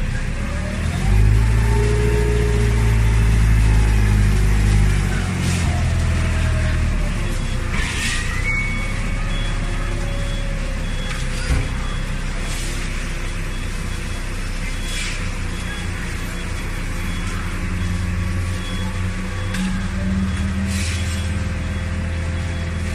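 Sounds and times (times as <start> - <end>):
forklift engine and hydraulics: 0.0 - 22.9
faint beeps: 7.3 - 22.9.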